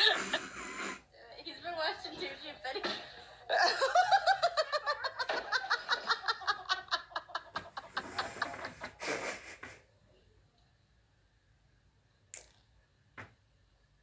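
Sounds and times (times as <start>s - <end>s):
person laughing hard: 0.0s - 0.9s, 3.5s - 9.8s
breathy hissing burst: 0.0s - 1.1s, 7.7s - 9.8s.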